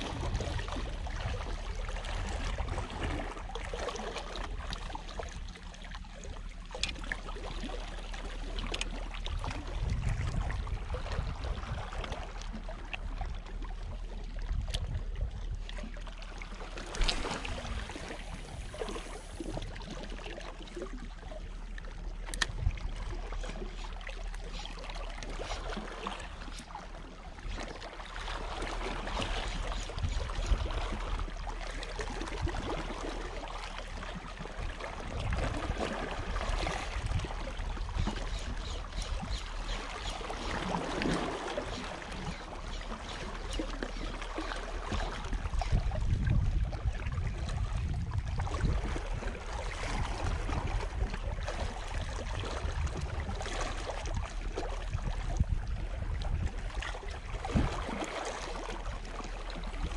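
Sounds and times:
wind on microphone: 0.0s - 3.6s, 9.2s - 15.9s, 16.9s - 20.0s, 22.4s - 23.8s, 28.6s - 31.4s, 34.0s - 44.0s, 44.7s - 59.9s.

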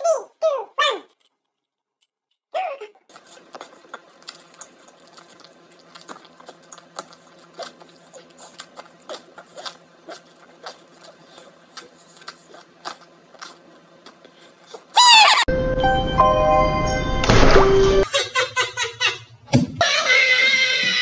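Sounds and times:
person chewing with mouth clicks: 3.1s - 15.0s.

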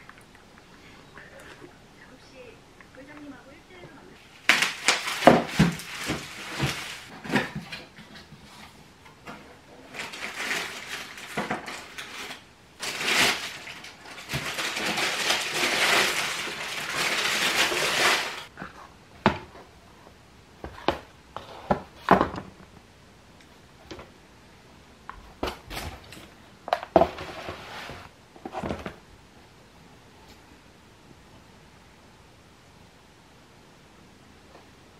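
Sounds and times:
paper wrapping rustling: 4.2s - 8.7s, 9.8s - 18.5s.

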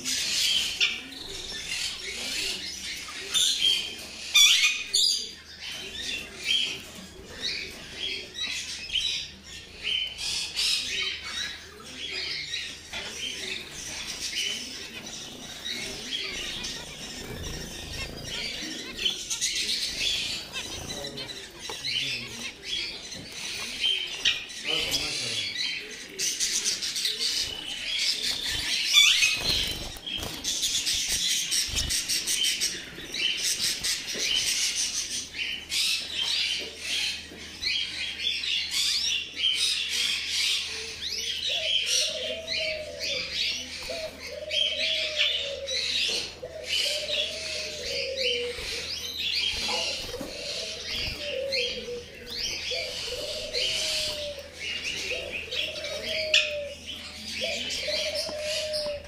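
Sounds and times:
birds chirping and twittering: 0.0s - 59.0s
low cooing call: 41.5s - 43.3s, 43.9s - 48.9s, 49.8s - 59.0s.

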